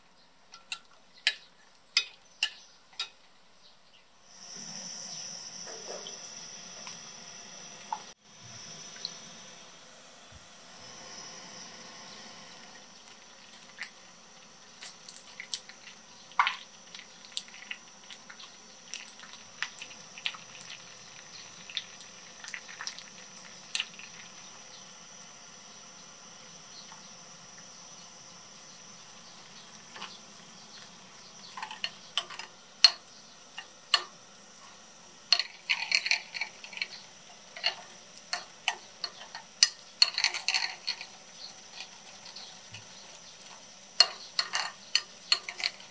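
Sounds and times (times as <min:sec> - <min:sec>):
metal spoon scraping glass: 0:37.6 - 0:41.1, 0:44.0 - 0:45.9.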